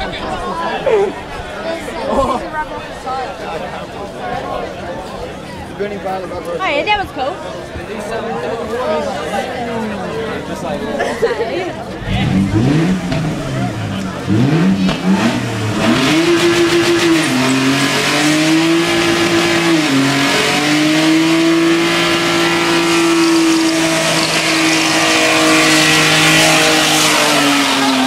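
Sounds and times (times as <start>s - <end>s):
car engine at high revs: 11.9s - 28.0s.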